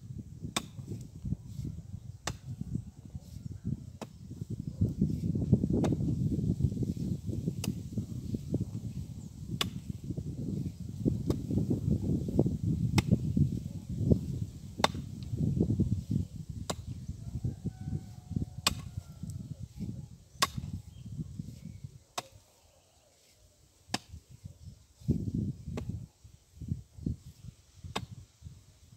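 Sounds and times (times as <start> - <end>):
pickaxe striking clay: 0.5 - 0.9, 9.6 - 9.9, 14.8 - 15.0, 18.7 - 18.9, 20.4 - 20.7, 23.9 - 24.2, 27.9 - 28.1.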